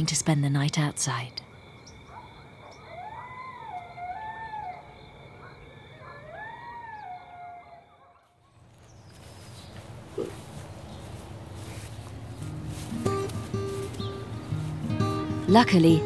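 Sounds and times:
coyote howling: 0:01.5 - 0:08.4.

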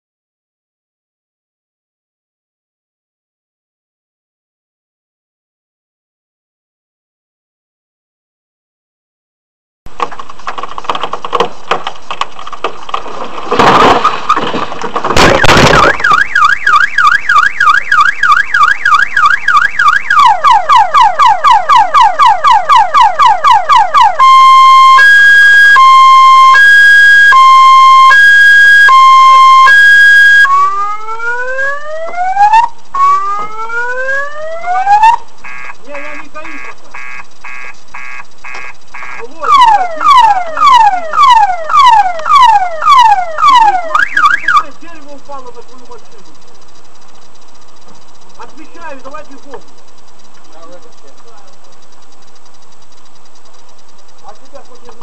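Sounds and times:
tree crashing onto car: 0:10.0 - 0:16.3
car alarm: 0:13.5 - 0:55.0.

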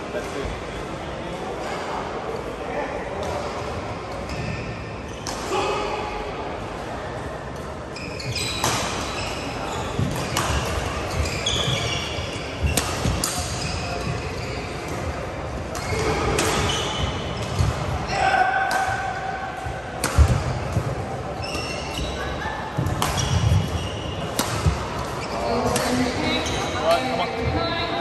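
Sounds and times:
shoes squeaking on court: 0:07.9 - 0:17.9, 0:20.2 - 0:27.7
voices echoing in hall: 0:08.2 - 0:28.0
rackets striking shuttlecocks: 0:20.0 - 0:21.0, 0:22.8 - 0:26.2.

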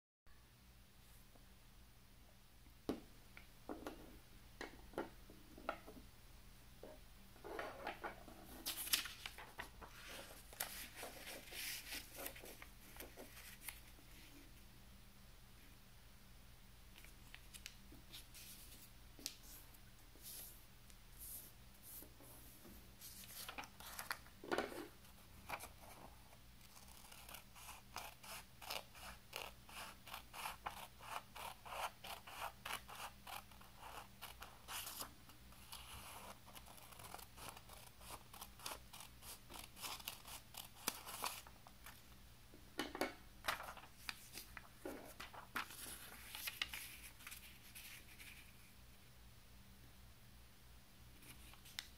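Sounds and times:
paper rustling: 0:07.7 - 0:13.9, 0:23.0 - 0:26.0, 0:34.6 - 0:42.0, 0:43.4 - 0:48.6.

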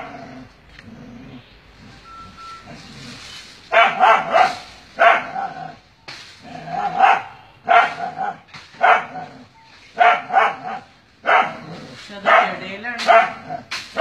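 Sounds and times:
dog barking: 0:03.7 - 0:05.7, 0:06.8 - 0:09.3, 0:10.0 - 0:14.0.

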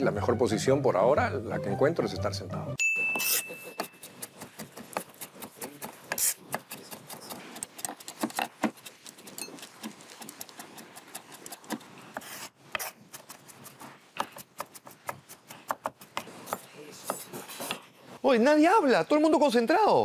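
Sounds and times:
knife chopping on wooden board: 0:03.2 - 0:13.3, 0:14.2 - 0:17.9.

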